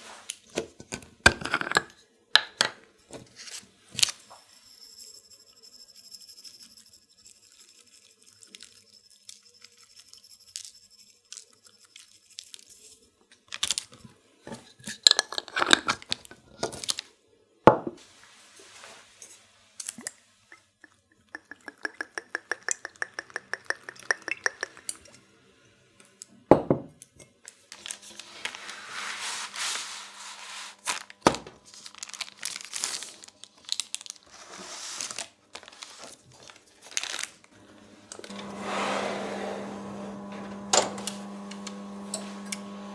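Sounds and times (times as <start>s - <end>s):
herbs shaken from glass jar: 4.5s - 13.0s
parchment paper crinkling: 7.5s - 14.1s, 27.5s - 37.6s
glass knocking on wooden counter: 17.7s - 18.0s, 26.5s - 26.9s.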